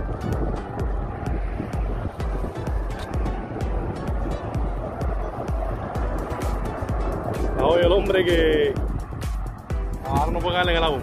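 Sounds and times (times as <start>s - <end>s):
music playing: 0.0s - 11.0s
wind buffeting microphone: 0.0s - 11.0s.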